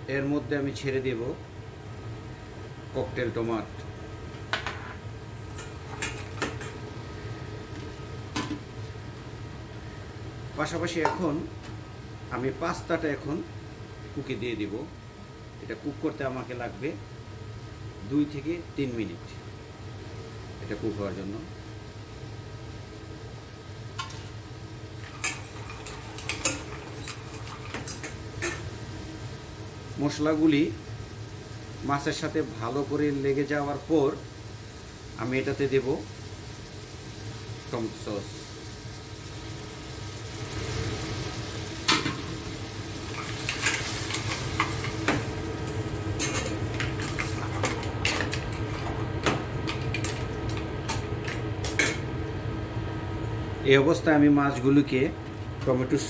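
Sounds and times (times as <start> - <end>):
steady low hum: 0.0 - 56.0
seafood sizzling in sauce: 21.6 - 53.2
metal tongs clinking on saucepan: 46.2 - 47.3.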